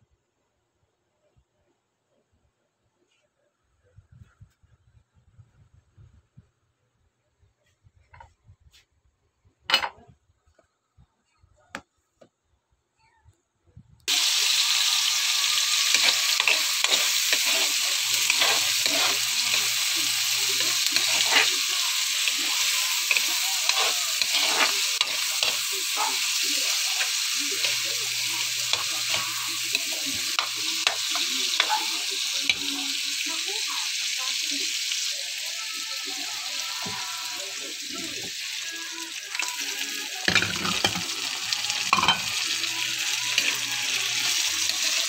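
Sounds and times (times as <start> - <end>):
vegetables sizzling in hot oil: 14.1 - 45.0.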